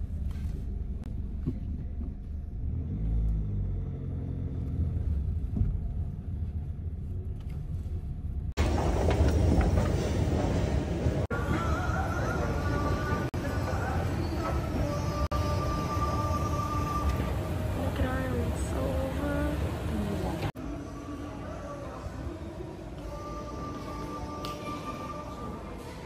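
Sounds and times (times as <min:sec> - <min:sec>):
low steady rumble: 0:00.0 - 0:09.8.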